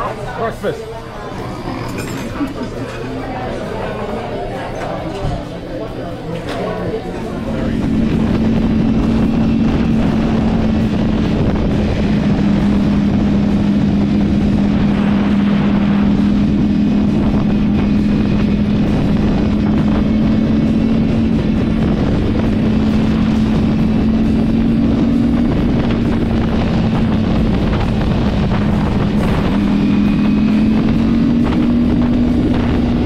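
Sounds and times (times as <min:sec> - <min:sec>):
motorcycle engine cruising: 0:06.7 - 0:33.0
wind rushing over microphone: 0:07.1 - 0:33.0.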